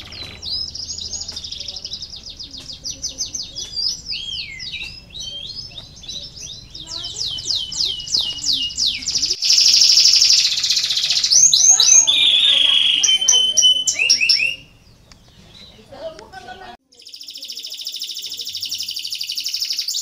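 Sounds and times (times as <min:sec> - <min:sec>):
fast rolling trill: 0:00.0 - 0:14.9
canaries singing: 0:00.0 - 0:20.0.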